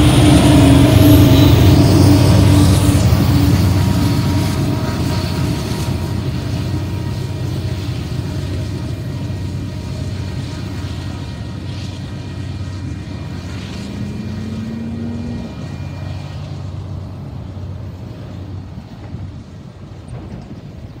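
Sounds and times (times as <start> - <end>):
distant diesel locomotives droning: 0.0 - 21.0.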